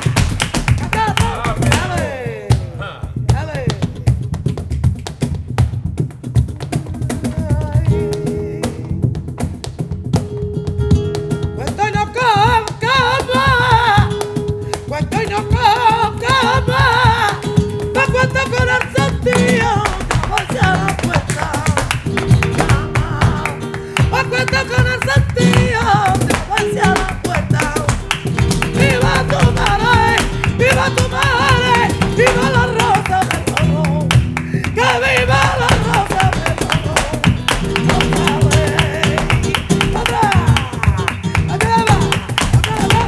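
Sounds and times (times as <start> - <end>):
sharp hand-clapping: 0.0 - 2.1, 12.6 - 43.0
flamenco guitar: 0.0 - 43.0
woman singing: 0.7 - 4.5, 6.6 - 9.6, 11.5 - 43.0.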